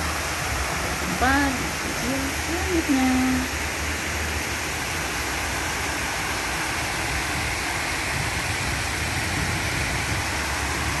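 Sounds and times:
fountain jets splashing: 0:00.0 - 0:11.0.

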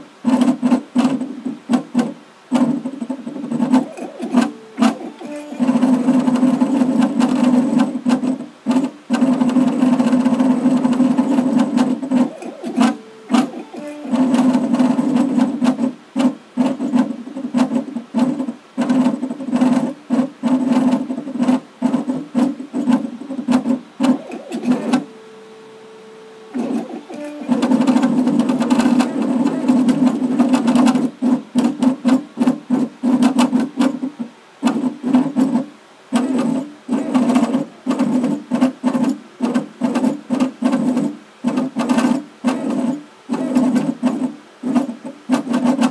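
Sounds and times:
faint steady tone: 0:03.8 - 0:06.5, 0:24.2 - 0:30.0.

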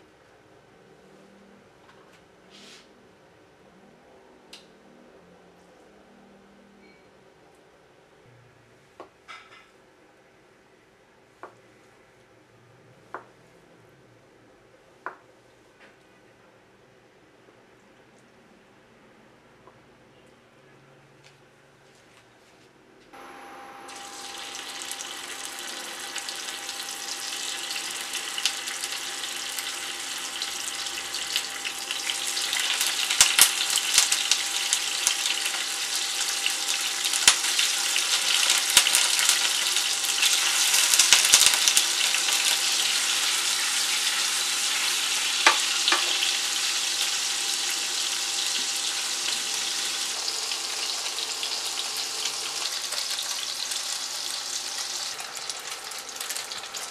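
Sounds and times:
tofu frying in hot oil: 0:23.9 - 0:56.9.

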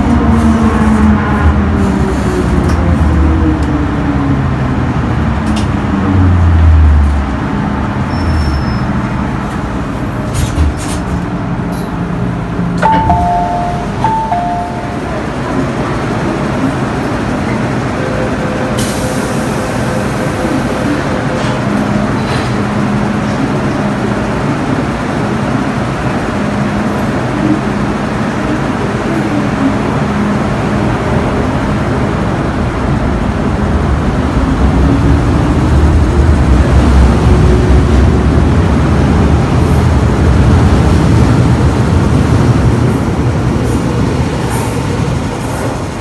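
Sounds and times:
train and tunnel rumble: 0:00.0 - 0:46.0
falling two-note chime: 0:12.8 - 0:15.3.

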